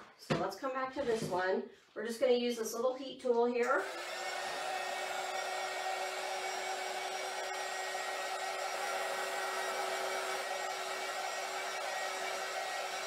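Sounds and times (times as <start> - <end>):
heat gun whining: 3.8 - 13.0.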